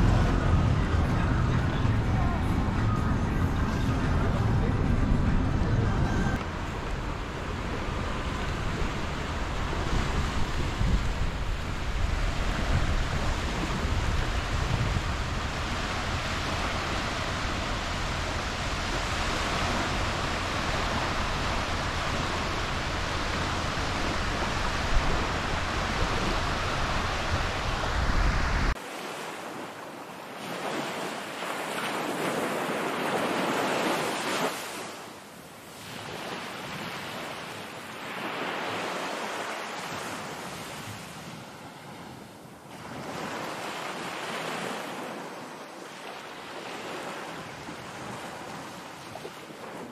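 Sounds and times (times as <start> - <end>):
wind buffeting microphone: 0.0 - 28.8
waves washing in: 0.0 - 49.9.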